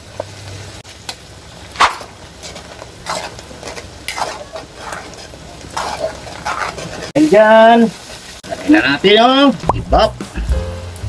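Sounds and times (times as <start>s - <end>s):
utensil stirring spaghetti: 2.2s - 8.8s.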